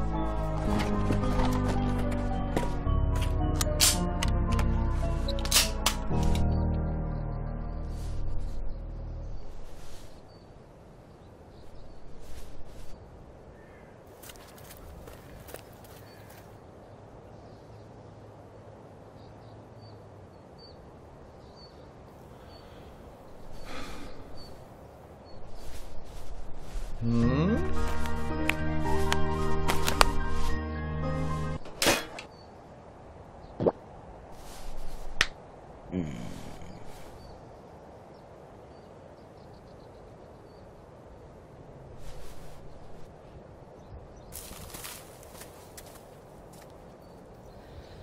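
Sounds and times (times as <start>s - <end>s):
background hiss: 21.0s - 29.3s, 31.8s - 38.8s
finger snap: 28.0s - 30.2s, 35.2s - 35.4s.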